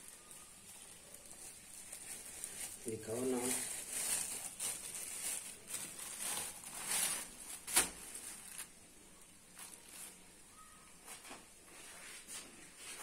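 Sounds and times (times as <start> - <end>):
plastic bag rustling: 0.0 - 10.4.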